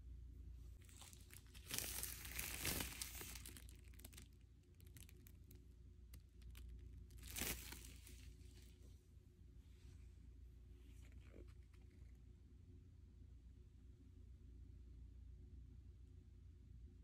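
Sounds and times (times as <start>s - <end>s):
plastic shrink wrap crinkling: 0.8s - 8.8s.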